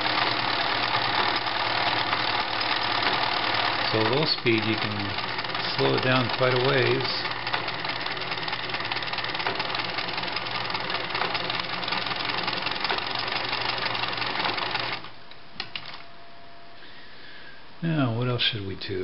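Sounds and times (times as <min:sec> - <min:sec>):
sewing machine stitching: 0:00.0 - 0:16.0.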